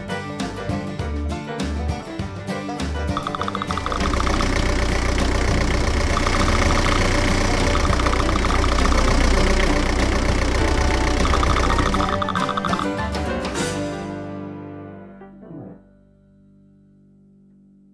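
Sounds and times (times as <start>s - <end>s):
heavy truck engine rumbling: 3.3s - 12.7s.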